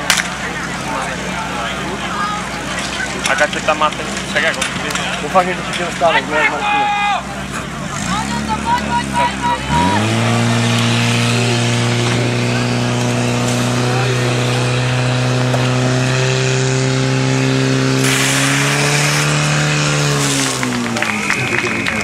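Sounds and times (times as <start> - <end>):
pump engine at full throttle: 9.7 - 22.0.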